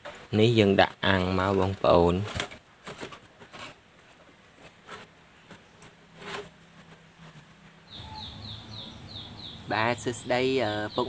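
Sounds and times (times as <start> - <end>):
high chirping: 7.9 - 11.0.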